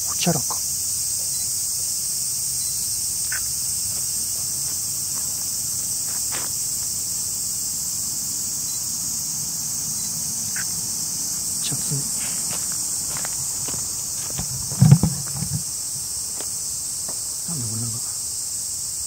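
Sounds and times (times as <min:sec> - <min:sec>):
small ticks: 0:00.0 - 0:02.0, 0:02.6 - 0:05.4, 0:10.0 - 0:11.4
insect chorus droning: 0:00.0 - 0:19.0.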